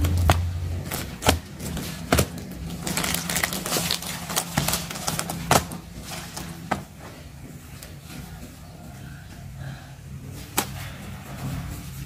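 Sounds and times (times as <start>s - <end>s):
plastic bag crinkling: 0.0s - 6.7s.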